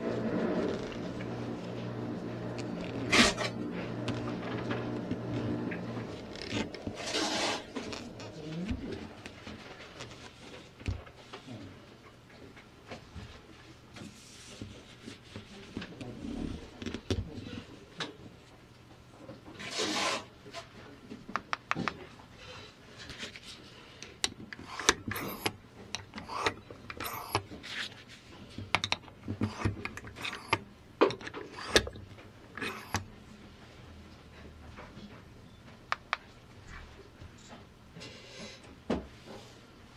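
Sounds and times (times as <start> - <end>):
brief rubbing noise: 7.0 - 8.4.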